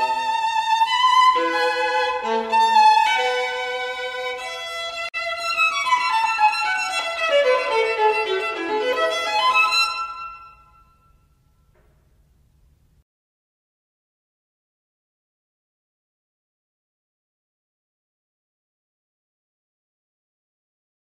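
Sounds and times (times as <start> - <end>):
violin melody: 0.0 - 11.2.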